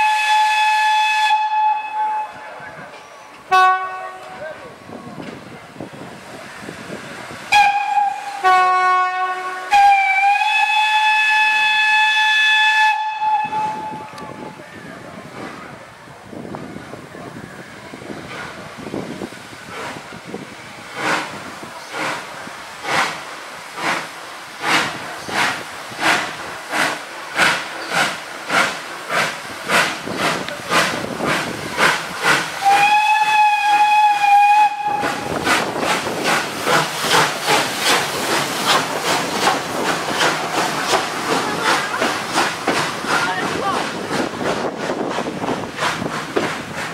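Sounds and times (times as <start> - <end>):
steam whistle blast: 0.0 - 2.5, 7.5 - 14.4, 32.6 - 35.3
steam locomotive chuffing: 0.0 - 46.9.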